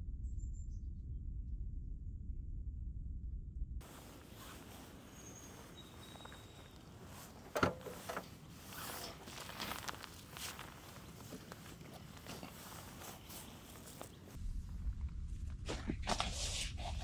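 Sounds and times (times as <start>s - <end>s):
low rumble: 0.0s - 4.2s, 14.3s - 16.1s
rustling: 3.8s - 14.4s
footsteps: 3.8s - 14.8s
car boot latch clunk: 7.5s - 8.2s.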